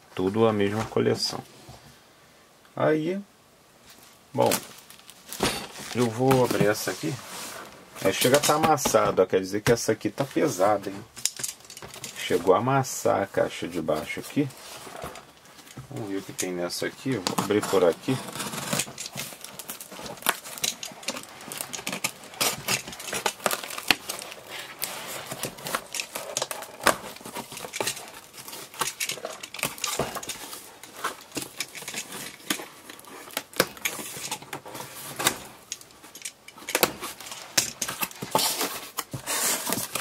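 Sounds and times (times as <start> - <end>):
cardboard flaps being handled: 4.0 - 10.5, 17.0 - 35.6
box cutter slicing packing tape: 37.8 - 40.0.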